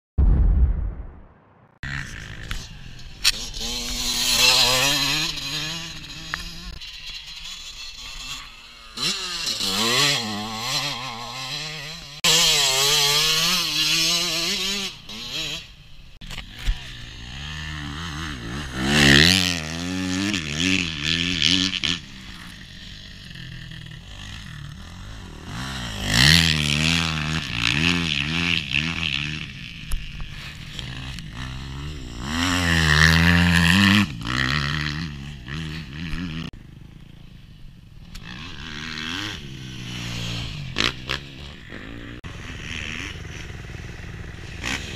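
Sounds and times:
motocross bike engines revving: 1.8 - 44.9.

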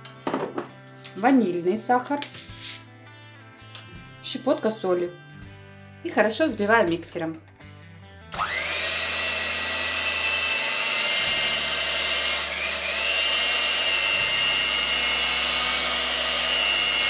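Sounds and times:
electric hand mixer whining: 8.3 - 17.0.

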